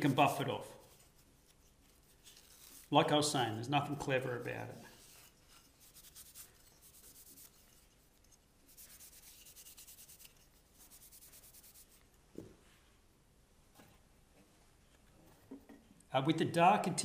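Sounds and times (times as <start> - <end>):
cloth rubbing on wood: 4.2 - 12.2.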